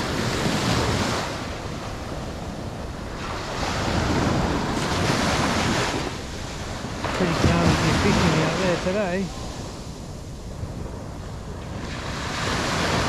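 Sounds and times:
ocean waves washing ashore: 0.0 - 13.0
wind buffeting microphone: 0.0 - 13.0.

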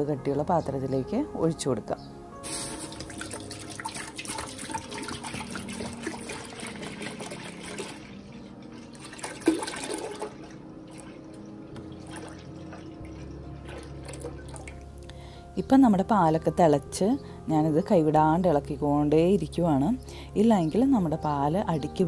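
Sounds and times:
milk sloshing: 2.4 - 15.0
milk pouring into a pot: 2.6 - 15.0.

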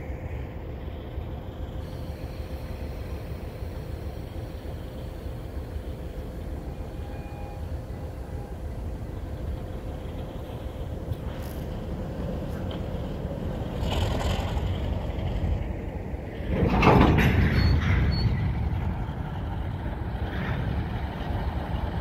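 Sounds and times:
freight train rumbling past: 0.0 - 22.0
train wheel squeal: 1.8 - 8.8, 17.2 - 18.8.

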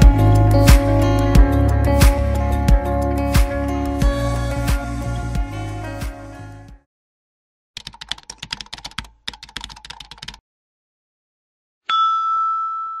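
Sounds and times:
rapid keyboard key clicks: 7.8 - 10.4
ding ringing: 11.9 - 13.0.

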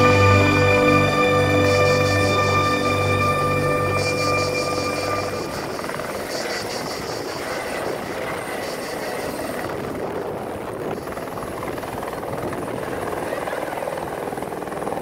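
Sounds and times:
background music: 0.0 - 6.2
helicopter engine and rotor: 0.0 - 15.0.

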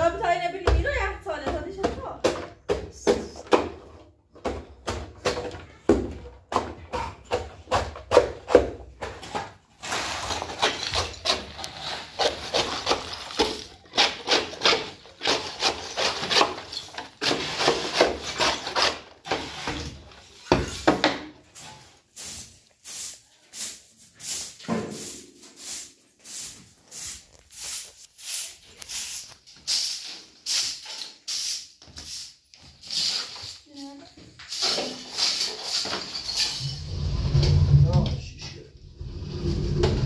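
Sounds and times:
scraper pushing rubble on concrete: 9.7 - 20.1
trowel scraping plaster in bowl: 9.8 - 19.9
broom sweeping: 21.4 - 37.8.

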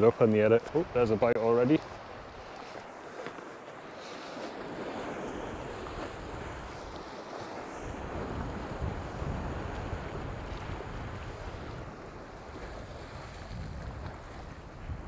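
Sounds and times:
sea surf washing against rocks: 0.0 - 15.0
wind buffeting microphone: 4.3 - 15.0.

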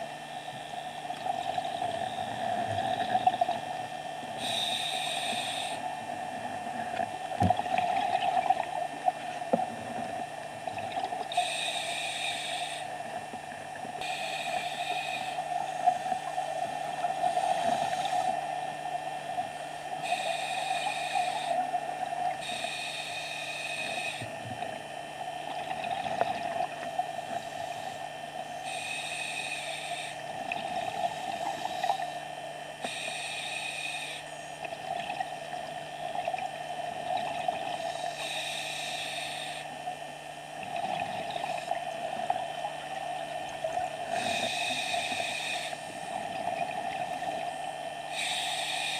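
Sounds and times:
steady hum: 0.0 - 48.9
scuba regulator breathing hiss: 4.4 - 6.1, 11.3 - 13.0, 14.0 - 18.5, 20.0 - 21.7, 22.4 - 24.3, 28.6 - 30.2, 32.8 - 34.4, 37.8 - 39.7, 44.1 - 46.1, 48.1 - 48.9.

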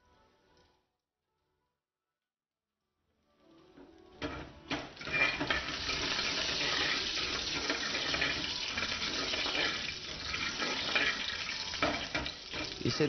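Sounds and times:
garlic sizzling in hot oil: 4.6 - 13.0
metal ladle clinking on a pan: 5.0 - 12.9.

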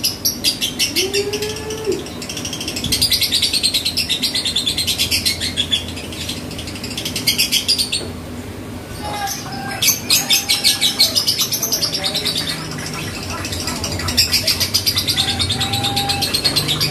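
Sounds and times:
bird chirping and chattering: 0.0 - 8.2, 8.9 - 16.9.

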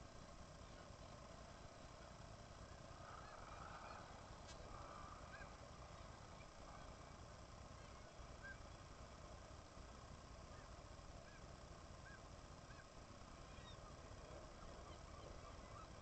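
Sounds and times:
steady hiss: 0.0 - 16.0
seabirds calling: 2.7 - 8.9, 10.4 - 16.0.

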